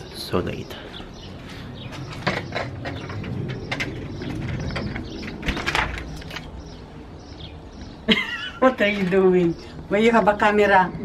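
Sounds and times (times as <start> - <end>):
low rumble: 1.7 - 8.0.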